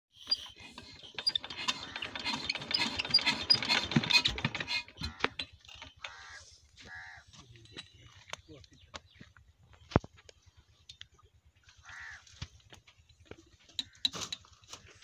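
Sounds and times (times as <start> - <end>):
metallic clicking and rattling of tools: 0.2 - 6.2.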